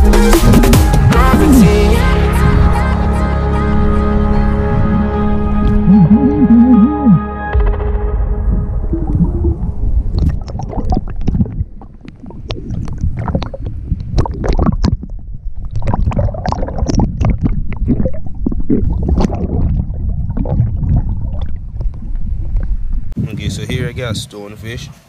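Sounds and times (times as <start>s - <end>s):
low rumble from camera housing: 0.4s - 24.2s
gurgling bubbles: 4.7s - 7.2s, 8.5s - 23.2s
water sloshing and splashing: 8.5s - 23.2s.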